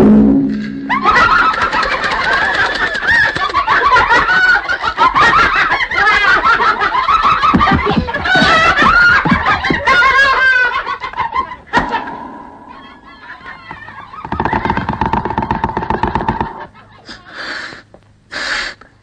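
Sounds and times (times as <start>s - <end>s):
sharp knock: 11.8s - 16.6s.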